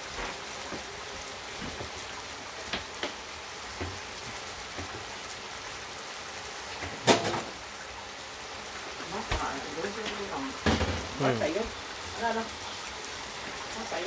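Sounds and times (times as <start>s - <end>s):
steady hissing noise: 0.0s - 14.0s.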